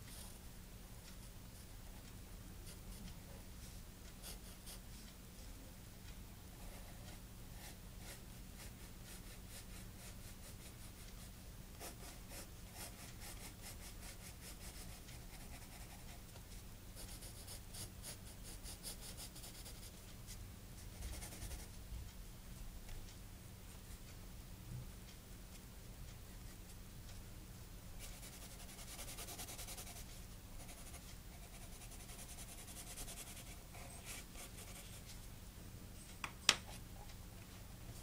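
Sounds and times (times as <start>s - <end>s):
pencil scratching on paper: 4.2s - 4.8s, 6.6s - 16.2s, 17.0s - 21.7s, 28.0s - 35.1s.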